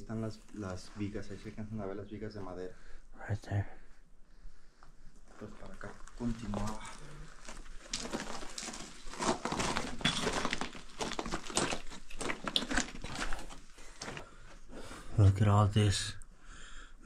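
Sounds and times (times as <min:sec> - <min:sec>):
footsteps crunching on gravel: 0:05.3 - 0:14.3.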